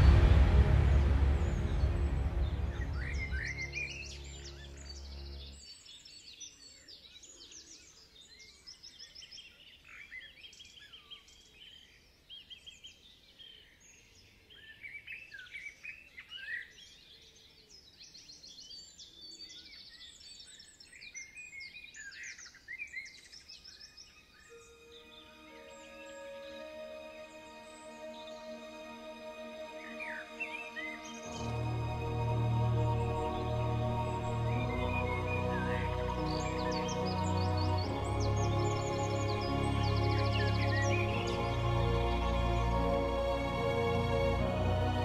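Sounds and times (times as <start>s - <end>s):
music: 0.0s - 5.9s, 24.5s - 45.0s
songbirds singing: 2.9s - 42.7s.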